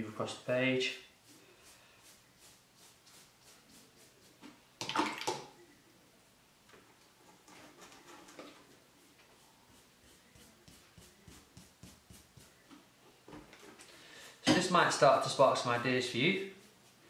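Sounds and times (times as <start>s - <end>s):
wet brush stroking paper: 0.0s - 4.6s, 8.6s - 12.7s, 14.7s - 17.0s.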